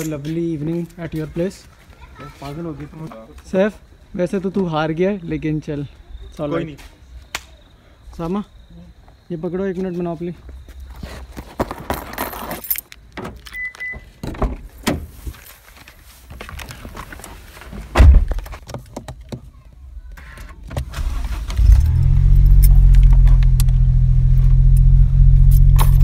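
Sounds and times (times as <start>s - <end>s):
car keys jangling: 11.7s - 14.0s, 24.7s - 26.0s
car door shutting: 17.9s - 18.5s
car engine starting and idling: 20.8s - 26.0s.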